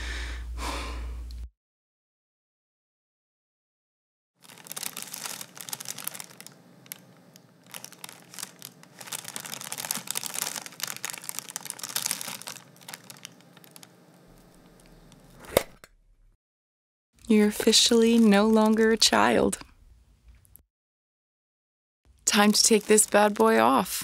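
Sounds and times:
tissue paper crinkling and tearing: 4.4s - 7.0s, 7.6s - 13.9s, 17.7s - 19.4s, 22.3s - 23.8s.

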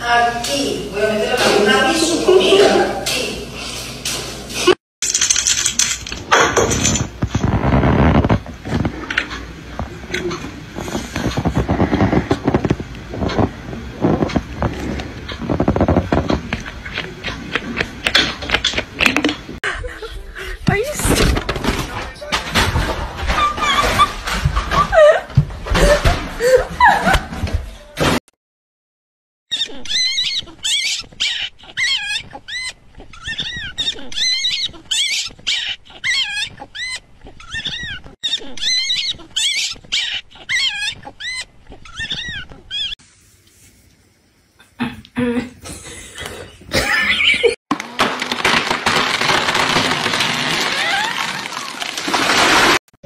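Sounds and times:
puppy squealing and whining: 23.3s - 24.2s, 29.5s - 43.0s.

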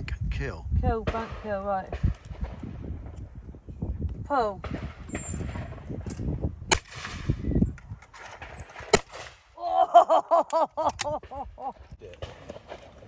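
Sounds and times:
shotgun shots: 6.7s - 7.4s, 8.8s - 9.4s.

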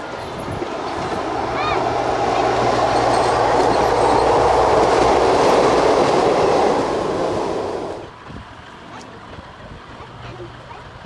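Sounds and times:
railcar rolling on rails: 0.0s - 11.0s.

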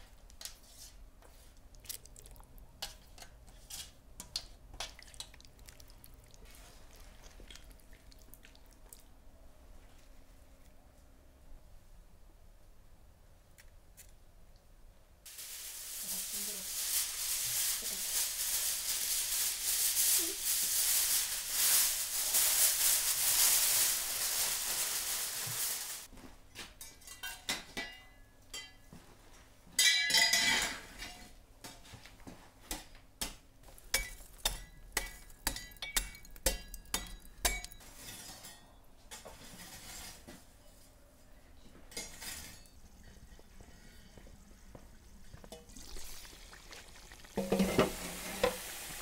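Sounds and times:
foil and paper crinkling: 15.3s - 26.1s.

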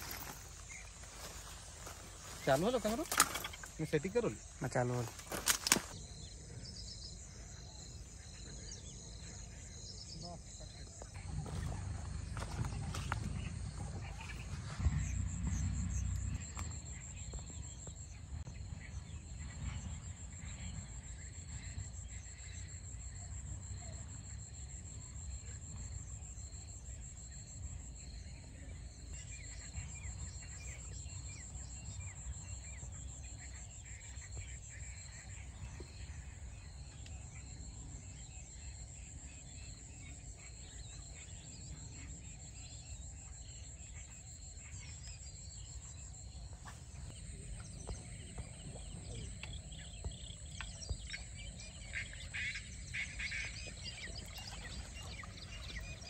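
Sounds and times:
insects trilling high buzz: 0.0s - 18.2s
pulsing insect call: 0.0s - 56.0s.

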